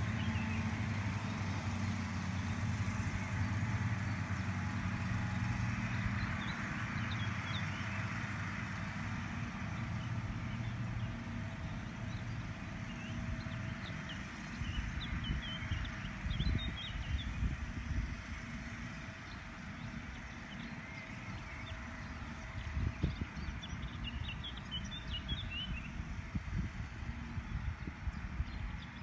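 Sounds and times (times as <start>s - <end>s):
mower engines droning: 0.0s - 29.0s.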